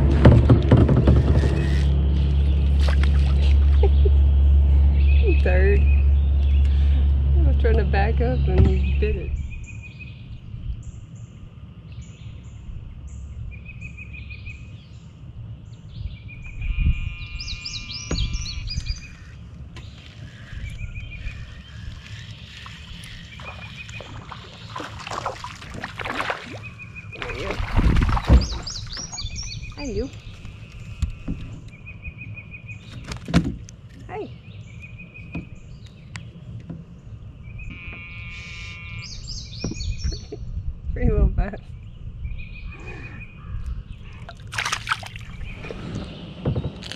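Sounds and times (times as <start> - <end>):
low thumps: 0.0 - 9.5, 18.0 - 18.8
low rumble: 0.0 - 32.4
birds chirping and singing: 0.9 - 46.9
trilling bird call: 16.4 - 25.2, 37.5 - 40.3.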